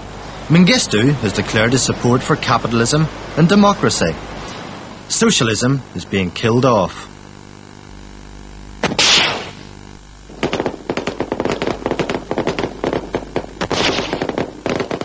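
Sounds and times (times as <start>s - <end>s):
low hum: 0.0s - 15.0s
automatic gunfire: 8.8s - 9.6s, 10.3s - 15.0s
loud blast: 8.8s - 9.7s, 10.3s - 15.0s.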